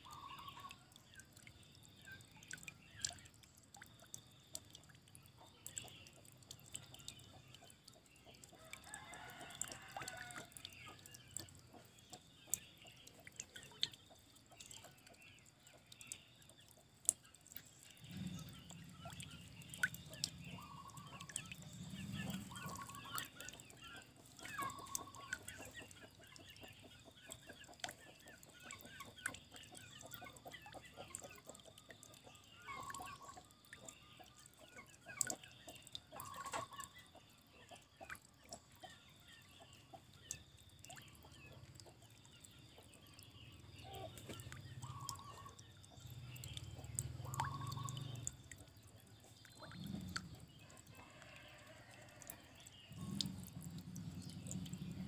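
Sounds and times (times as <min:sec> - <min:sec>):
water trickling and dripping: 0:00.0 - 0:55.0
chickens clucking: 0:20.1 - 0:31.8, 0:36.0 - 0:40.2, 0:41.4 - 0:45.9.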